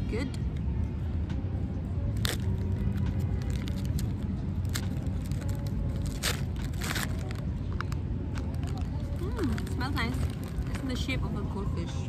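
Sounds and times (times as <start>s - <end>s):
low background rumble: 0.0s - 12.0s
plastic bag tearing open: 2.1s - 7.5s, 8.4s - 10.9s
plastic snack bag crinkling: 2.2s - 11.1s.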